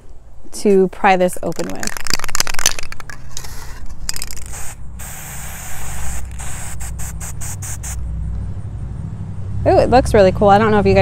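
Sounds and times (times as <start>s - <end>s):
spray paint can hissing: 1.5s - 8.0s.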